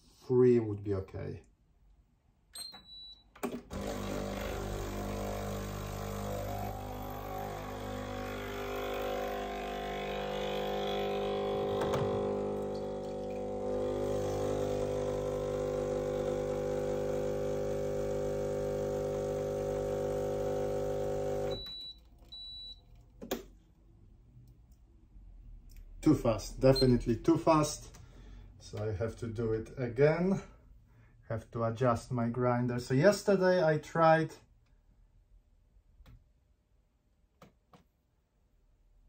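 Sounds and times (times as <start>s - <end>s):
espresso machine pump humming: 3.7s - 21.6s.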